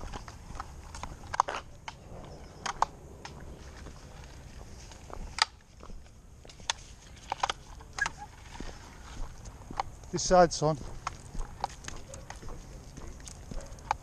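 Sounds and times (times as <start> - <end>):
low rumble of movement: 0.0 - 10.2
footsteps walking: 0.0 - 14.0.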